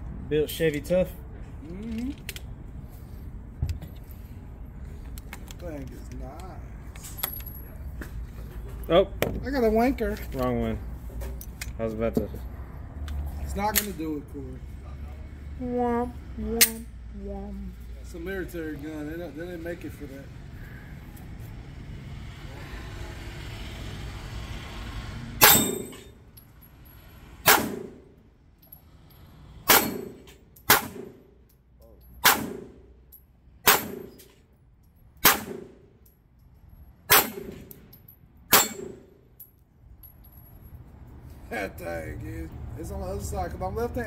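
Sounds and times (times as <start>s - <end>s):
bullets ringing on steel targets: 25.4s - 26.2s, 29.7s - 31.0s, 38.5s - 39.2s
pistol shots: 27.4s - 28.0s, 29.7s - 31.2s, 32.2s - 32.8s, 33.6s - 34.2s, 35.2s - 35.8s, 37.1s - 37.7s, 38.5s - 39.1s.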